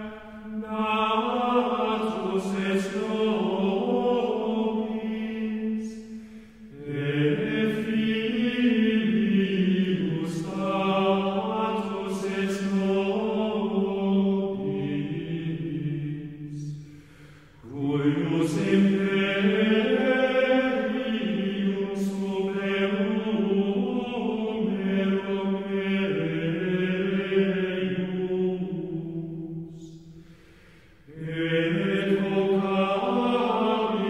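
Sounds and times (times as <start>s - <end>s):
choir chanting: 0.0s - 17.0s, 17.6s - 30.2s, 31.0s - 34.0s.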